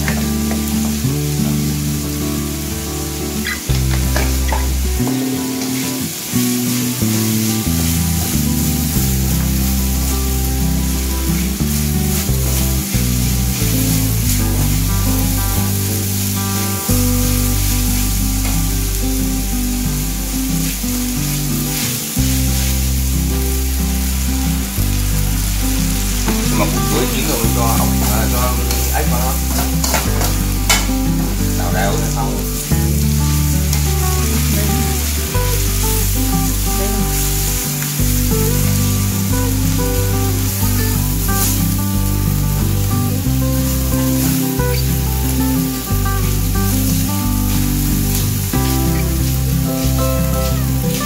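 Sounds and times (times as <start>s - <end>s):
background music with bass line: 0.0s - 51.0s
food sizzling in a wok: 0.0s - 51.0s
ladle scraping wok: 25.4s - 33.1s.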